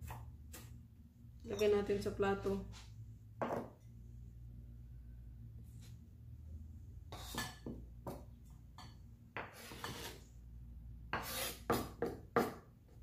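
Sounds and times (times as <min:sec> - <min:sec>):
knife scraping on cutting board: 0:07.1 - 0:07.7, 0:09.4 - 0:10.3, 0:11.1 - 0:11.9.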